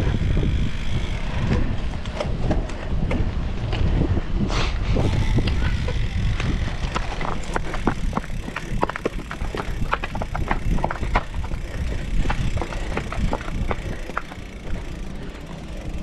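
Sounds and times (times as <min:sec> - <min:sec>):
bike rattling: 0:00.0 - 0:16.0
low rumble of handling noise: 0:00.0 - 0:16.0
footsteps on stone steps: 0:05.9 - 0:15.0.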